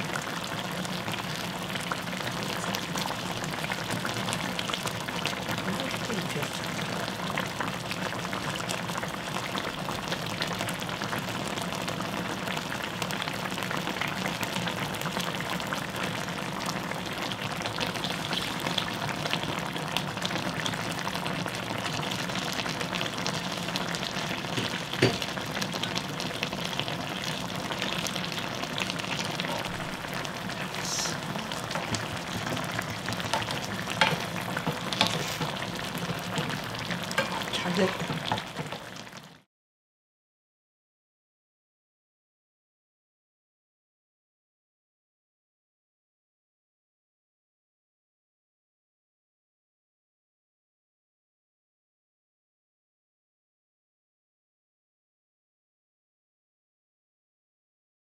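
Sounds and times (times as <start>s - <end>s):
sauce bubbling and sizzling in pan: 0.0s - 39.5s.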